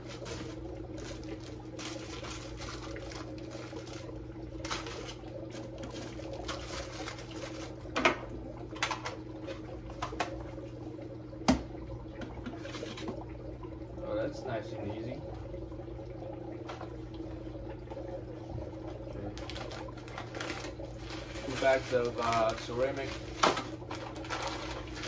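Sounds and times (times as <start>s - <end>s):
plastic rustling: 0.0s - 8.0s, 19.4s - 25.0s
steady low hum: 0.0s - 25.0s.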